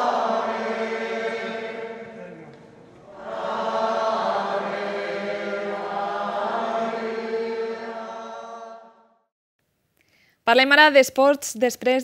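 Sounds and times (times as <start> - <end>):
voices singing a hymn: 0.0 - 9.2.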